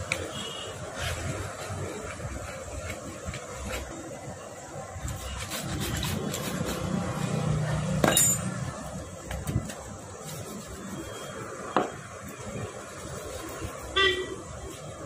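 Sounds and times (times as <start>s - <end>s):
ringing metallic clink: 8.0s - 8.6s.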